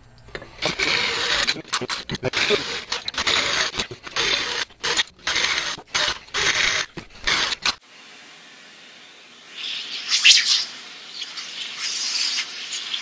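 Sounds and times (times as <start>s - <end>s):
electric drill grinding metal: 0.3s - 7.8s.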